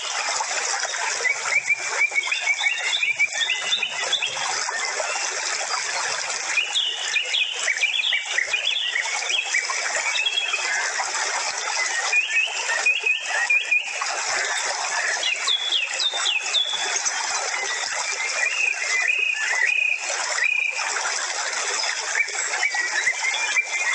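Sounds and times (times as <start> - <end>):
small birds chirping: 15.2 - 17.0.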